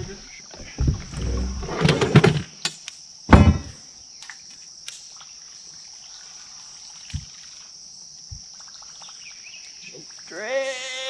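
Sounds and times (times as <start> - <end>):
insects droning: 0.0 - 11.0
soft low thump: 0.6 - 1.6.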